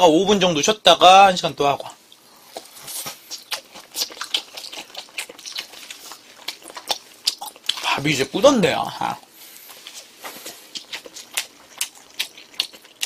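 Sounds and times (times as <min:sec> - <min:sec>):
man chewing food: 0:01.8 - 0:08.2, 0:08.9 - 0:13.0.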